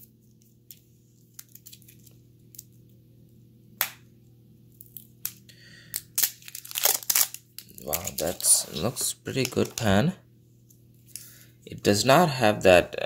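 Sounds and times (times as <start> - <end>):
faint steady hum: 0.0 - 13.0
plastic film crinkling and clicking: 0.4 - 2.8, 6.0 - 10.0.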